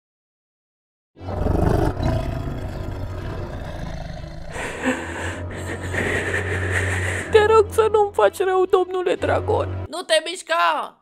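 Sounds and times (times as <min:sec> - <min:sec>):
cartoon dragon roar: 0:01.2 - 0:04.6.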